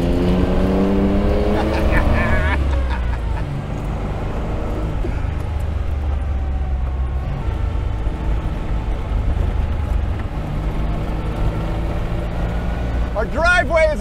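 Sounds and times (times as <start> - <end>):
tyre noise: 0.0 - 5.7
car engine droning: 0.0 - 14.0.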